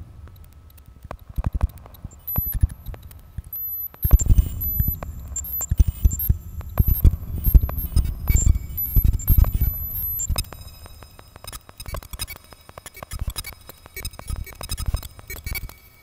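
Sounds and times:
electronic clicks and low thumps: 0.2 - 15.8
thin high steady tones: 3.6 - 11.4.

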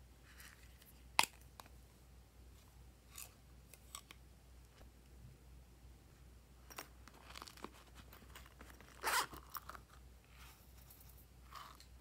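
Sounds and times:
handling clicks and rustles: 6.6 - 12.0
zipper pulled open: 8.8 - 9.7.

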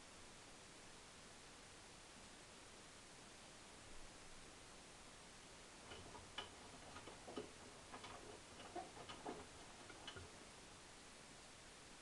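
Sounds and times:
washing machine drum turning: 5.8 - 10.5
laundry tumbling with clicks: 5.8 - 10.6.

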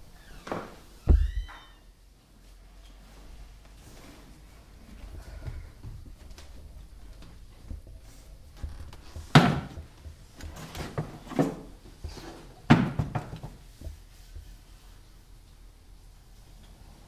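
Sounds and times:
crate thudding on wooden floor: 12.7 - 13.6.

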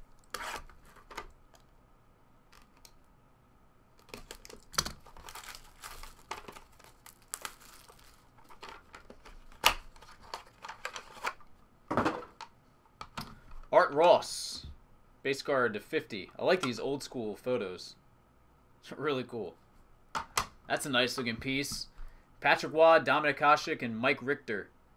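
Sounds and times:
plastic shrink wrap crinkling: 4.0 - 11.4.

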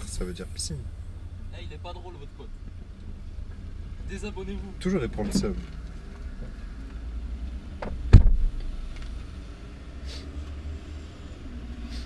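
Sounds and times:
low rumble inside car: 0.0 - 12.0
car door slamming: 7.8 - 8.6.

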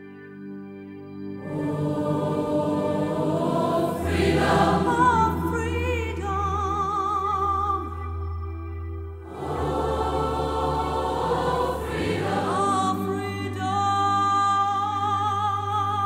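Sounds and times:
choir singing over held chords: 1.3 - 7.0, 9.2 - 15.3
high vibrato vocal line: 1.4 - 7.4, 9.3 - 14.3
deep drone: 1.4 - 14.0.

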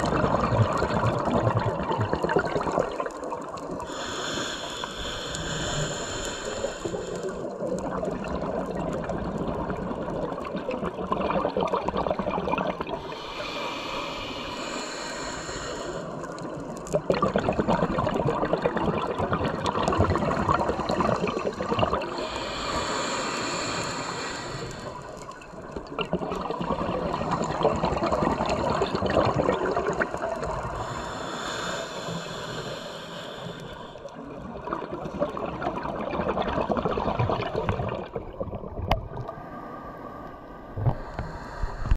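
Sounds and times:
exhaled air bubbling underwater: 0.0 - 41.9
regulator inhale hiss: 3.8 - 7.6, 13.0 - 16.9, 22.0 - 25.6, 30.4 - 34.2, 39.3 - 41.9.

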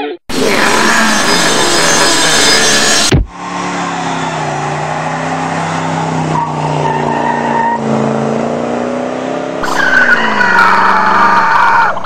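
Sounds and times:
tyres squealing: 0.3 - 8.1, 9.6 - 12.0
truck engine revving: 0.3 - 12.0.

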